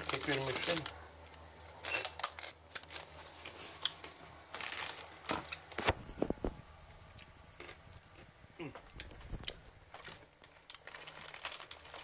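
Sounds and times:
dry noodle block crackling: 0.0s - 6.3s, 7.6s - 12.0s
plastic packet crinkling: 0.0s - 6.4s, 8.9s - 12.0s.

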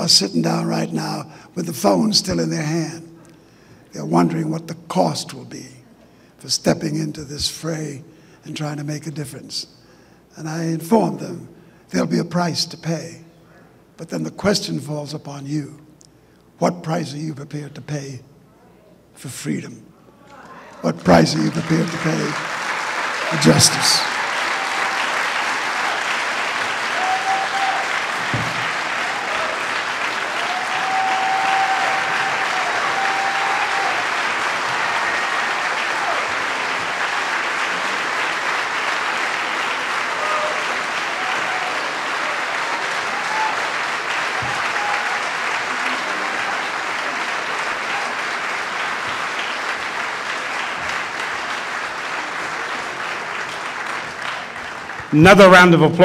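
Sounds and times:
large audience applauding: 20.9s - 55.3s.

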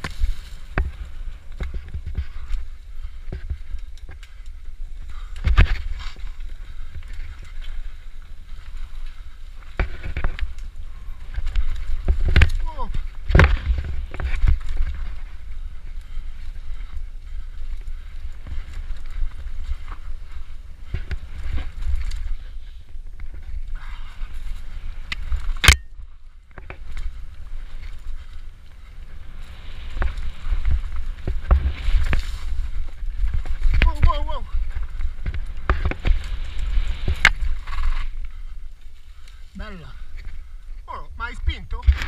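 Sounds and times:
low rumble of wind and vibration: 0.0s - 42.0s
bike knocks and rattles: 9.5s - 10.6s, 11.2s - 15.4s.

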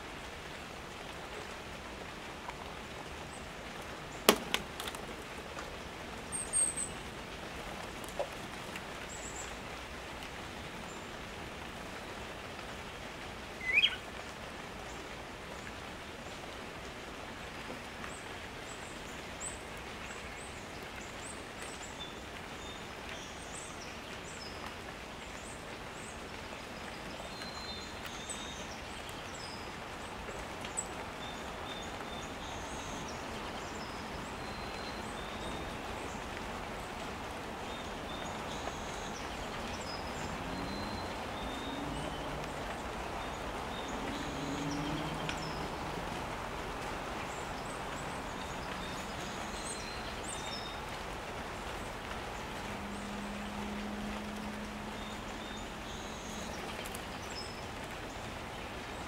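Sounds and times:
background hiss: 0.0s - 59.0s
short rising bird call: 13.6s - 14.0s
small birds chirping: 13.6s - 14.1s, 30.8s - 53.2s.

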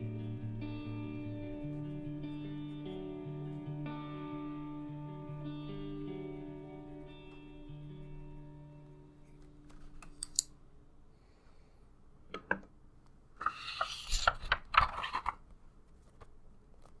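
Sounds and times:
paper page turning: 13.4s - 17.0s.

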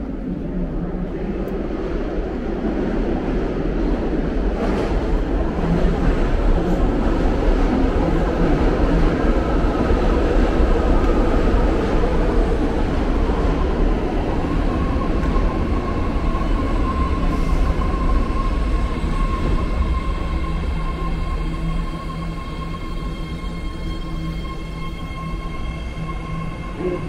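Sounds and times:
train rumble: 0.0s - 27.0s.

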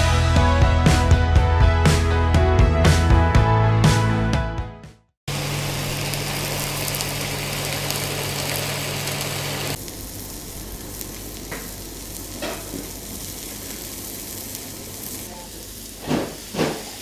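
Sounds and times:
onions sizzling on griddle: 5.3s - 17.0s
water sizzling on hot griddle: 5.3s - 17.0s.

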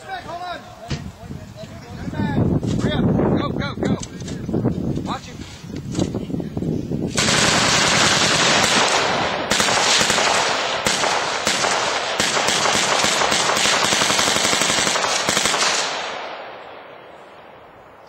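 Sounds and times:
machine-gun fire: 7.1s - 16.5s.

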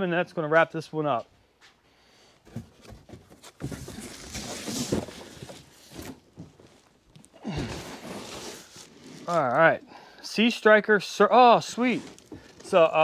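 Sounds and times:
cardboard scraping and rustling: 2.5s - 9.8s, 11.6s - 13.0s.

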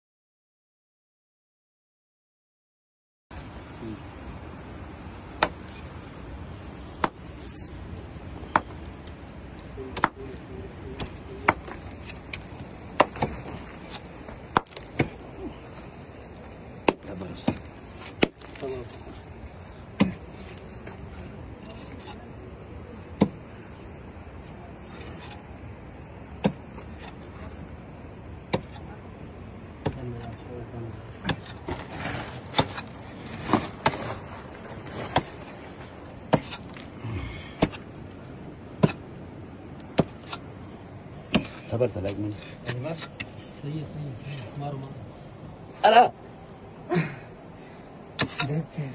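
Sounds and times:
hammer striking rock: 5.4s - 5.8s, 6.9s - 7.2s, 9.9s - 10.2s, 11.0s - 13.5s, 14.5s - 15.2s, 20.0s - 20.2s, 23.2s - 23.4s, 26.4s - 27.2s, 28.5s - 28.8s, 29.8s - 30.1s, 36.3s - 36.8s, 37.6s - 37.9s, 38.8s - 39.1s, 39.9s - 40.4s, 41.3s - 41.7s, 48.2s - 48.6s.

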